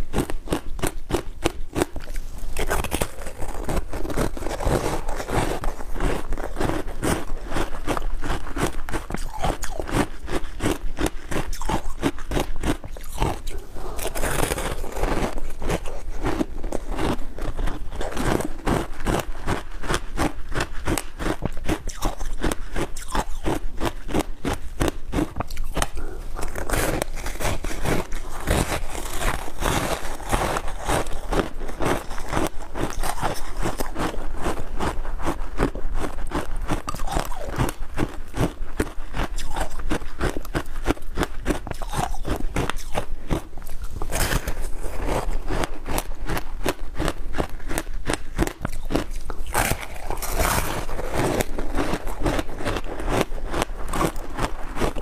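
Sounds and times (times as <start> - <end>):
crunching and chewing ice: 0.0 - 55.0.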